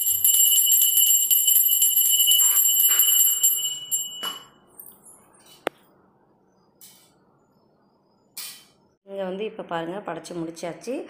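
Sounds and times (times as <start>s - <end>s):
hand bell ringing rapidly: 0.0s - 4.4s.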